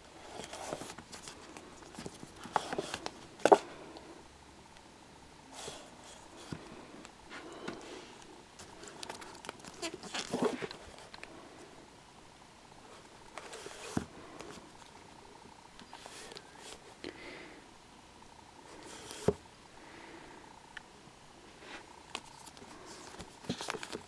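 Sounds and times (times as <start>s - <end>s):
fingers rustling against book spines: 0.1s - 3.7s, 5.5s - 11.4s, 12.8s - 15.1s, 15.7s - 17.0s, 18.6s - 19.4s, 21.6s - 24.0s.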